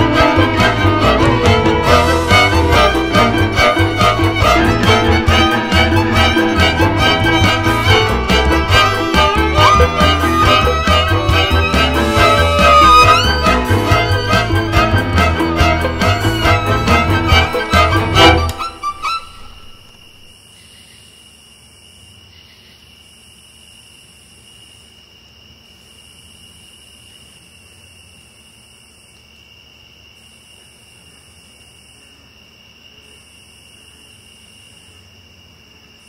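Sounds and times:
violin music: 0.0 - 20.3.

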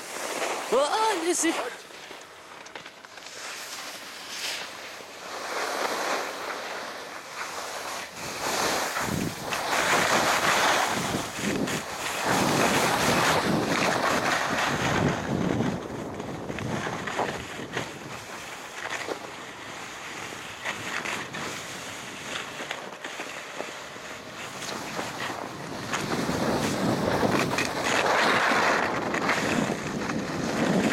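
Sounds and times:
skis scraping over snow: 0.0 - 30.9
wind rushing over microphone: 8.0 - 18.4, 24.6 - 30.9.

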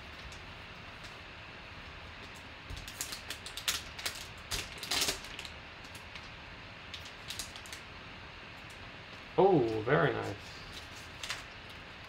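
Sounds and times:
plastic pack crinkling and tearing: 2.7 - 6.3, 6.9 - 7.8, 10.6 - 11.8.

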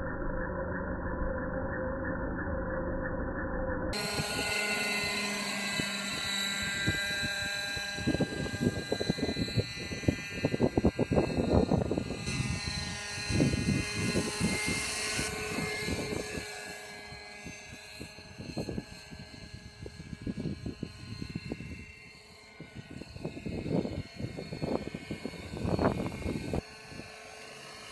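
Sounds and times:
model helicopter rotor whine: 3.9 - 27.9
gusty noise: 5.7 - 16.5, 22.8 - 27.0.

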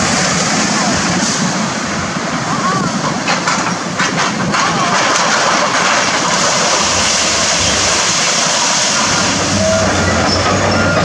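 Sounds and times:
steady rushing hiss: 0.0 - 4.5, 5.2 - 11.0
excavator engine running: 0.0 - 11.0
debris clanking and knocking: 3.2 - 11.0.

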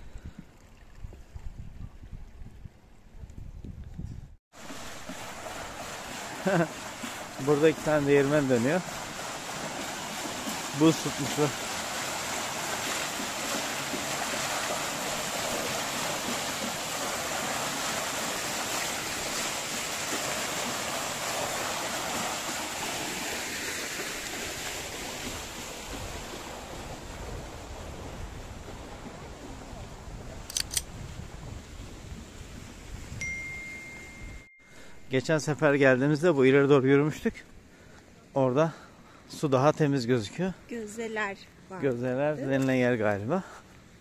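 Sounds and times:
river water rushing: 4.6 - 28.2
sharp clicks: 30.5 - 30.9.

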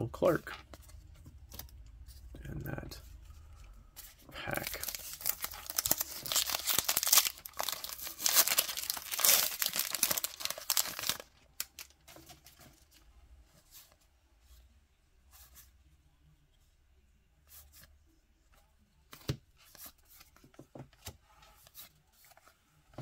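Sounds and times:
card pack wrapper tearing: 4.5 - 11.9.

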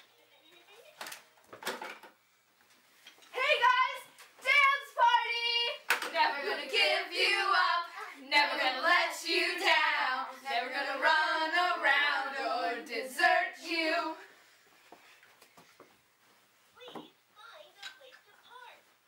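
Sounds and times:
children singing together: 6.1 - 14.3.

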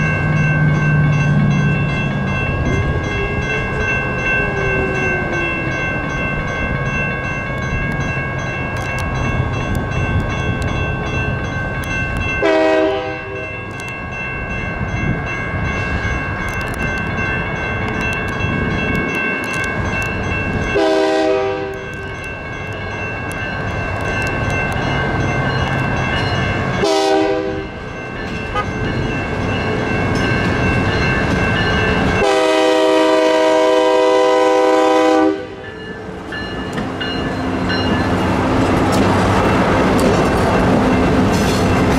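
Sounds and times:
railroad crossing bells ringing: 0.0 - 41.9
locomotive horn blasts: 12.4 - 13.5, 20.8 - 21.9, 26.8 - 27.8, 28.5 - 28.8, 32.2 - 35.6.

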